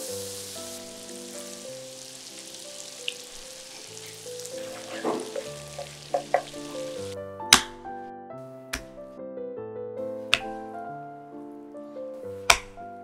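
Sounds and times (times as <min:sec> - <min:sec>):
food sizzling in a pan: 0:00.0 - 0:07.2
scrapes in pan: 0:03.7 - 0:06.4.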